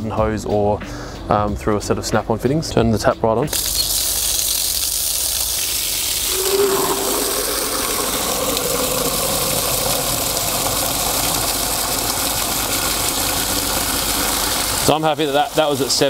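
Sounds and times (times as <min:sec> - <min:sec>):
water splashing onto concrete: 0:03.5 - 0:06.6, 0:07.4 - 0:16.0
water pouring into plastic bucket: 0:03.5 - 0:16.0.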